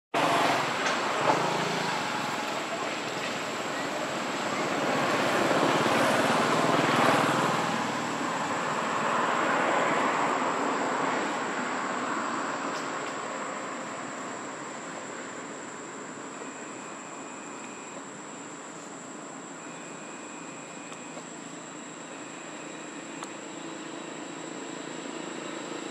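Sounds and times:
high-pitched whine: 14.5 - 25.9.

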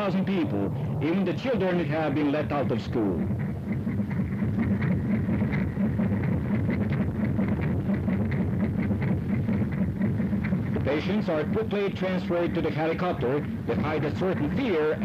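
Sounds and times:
helicopter engine and rotor droning: 0.0 - 15.0.

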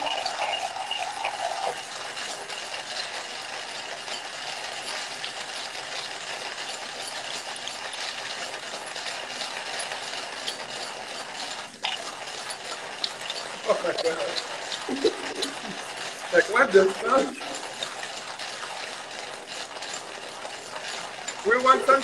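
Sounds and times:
hand coffee grinder crunching beans: 0.0 - 22.0.

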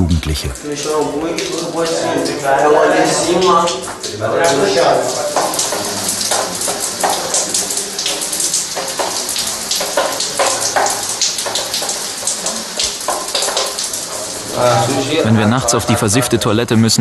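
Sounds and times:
water splashing from pipe: 0.6 - 15.2.

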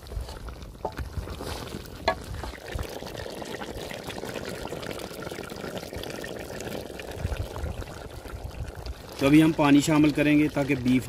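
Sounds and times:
pot of food simmering: 0.0 - 11.0.

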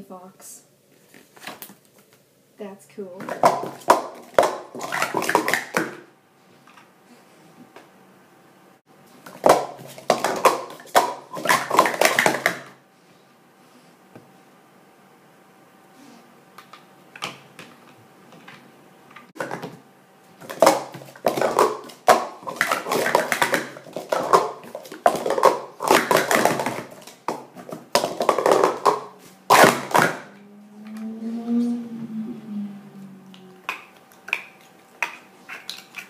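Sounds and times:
plastic cups clattering: 3.2 - 6.1, 9.2 - 12.8, 19.4 - 19.8, 20.4 - 30.4, 33.6 - 36.0.

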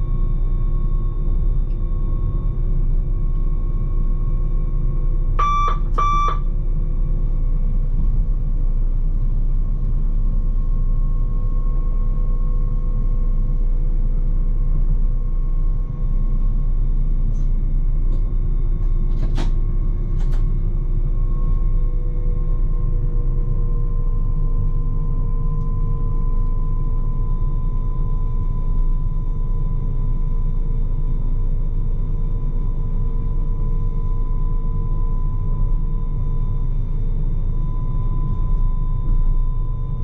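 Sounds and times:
short electronic beeps: 5.4 - 6.5
train wheels rumbling on rail: 13.6 - 24.8.

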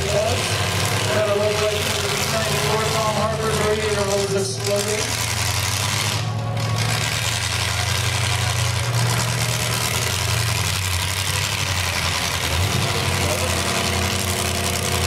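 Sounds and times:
car engines idling and running: 0.0 - 15.0.

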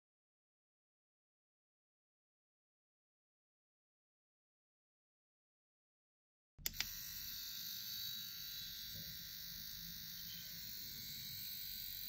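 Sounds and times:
mini drill whining into wood: 6.7 - 12.0.

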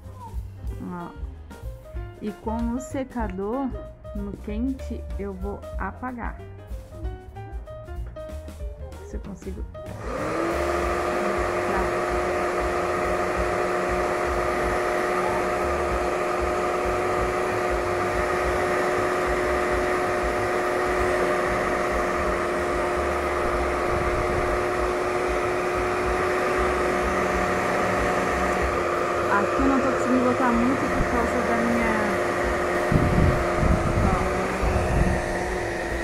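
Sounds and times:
hair dryer blowing: 9.9 - 36.0.

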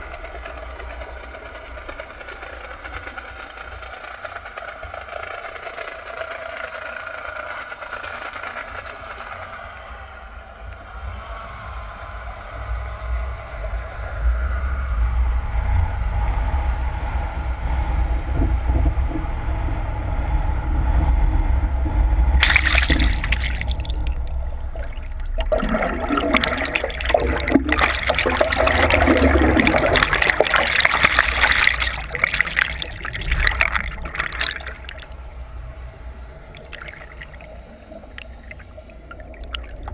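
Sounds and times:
boat engine whine: 9.6 - 39.9
steady low rumble: 10.2 - 39.9
water rushing underwater: 17.8 - 39.9
bubbling churning water: 18.3 - 35.2, 36.4 - 39.9.

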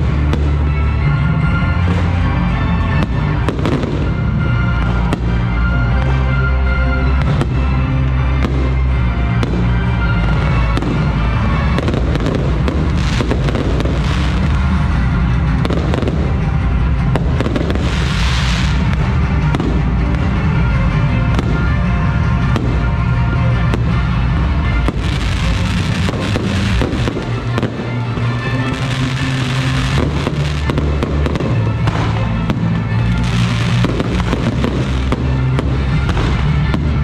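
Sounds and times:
fireworks bangs and crackles: 0.0 - 37.0
loud music with bass: 0.0 - 37.0
fireworks hissing: 17.1 - 19.1, 24.8 - 37.0.

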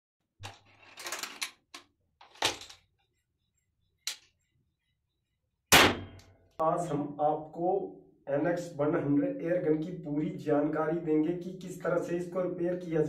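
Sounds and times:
loud sharp crack: 5.7 - 6.2.

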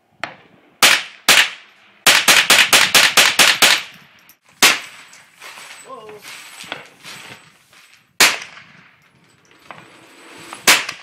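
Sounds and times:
rifle shots: 0.8 - 3.9, 8.2 - 8.8, 10.6 - 11.0.

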